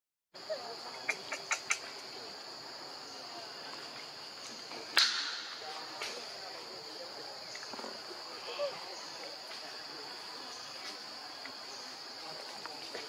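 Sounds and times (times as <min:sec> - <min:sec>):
insects droning: 0:00.4 - 0:13.0.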